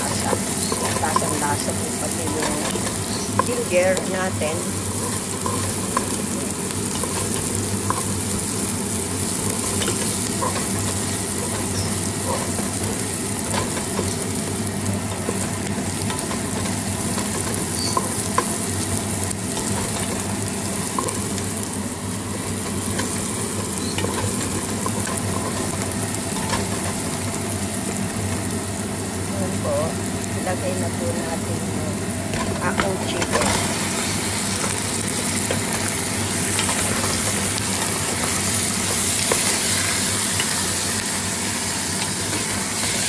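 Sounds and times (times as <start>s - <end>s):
onions sizzling in oil: 0.0s - 43.0s.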